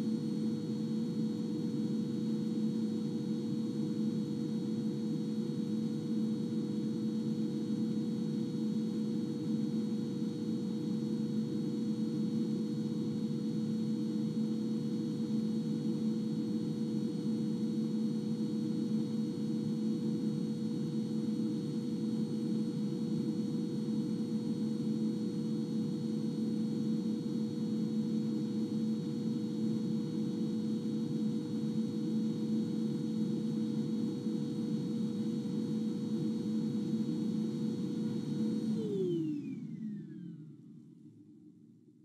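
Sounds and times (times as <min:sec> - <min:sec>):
vacuum motor spinning down: 0:35.5 - 0:40.9
vacuum cleaner running: 0:36.6 - 0:40.7.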